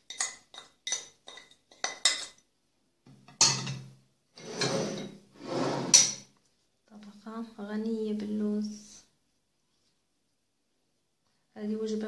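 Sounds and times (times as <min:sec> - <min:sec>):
plate scraping on wood: 0:04.4 - 0:06.2.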